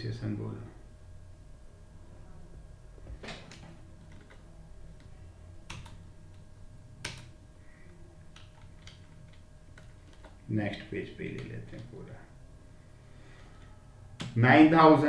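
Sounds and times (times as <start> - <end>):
faint steady hum: 0.0 - 15.0
computer keyboard clicks: 3.5 - 4.4, 5.7 - 6.4, 7.0 - 7.3, 8.3 - 12.0.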